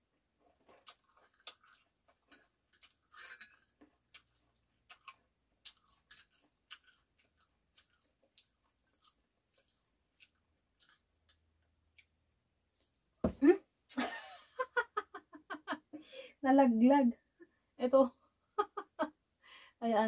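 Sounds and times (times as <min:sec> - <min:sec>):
person chewing with mouth clicks: 0:00.6 - 0:03.2, 0:04.1 - 0:12.2.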